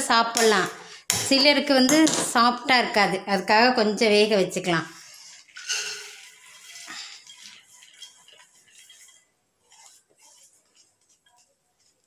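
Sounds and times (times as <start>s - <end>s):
sprouts poured into metal pot: 5.2s - 12.0s.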